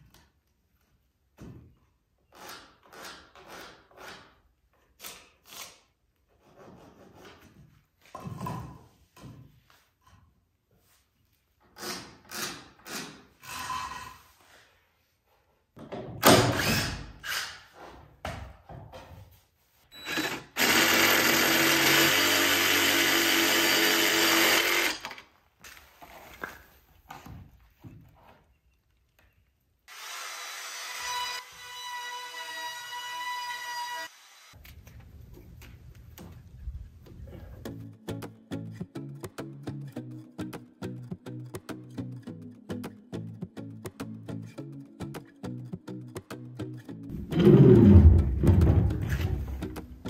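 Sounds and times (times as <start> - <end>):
power tool motor running: 20.0 - 25.0
knocks and handling: 47.1 - 50.0.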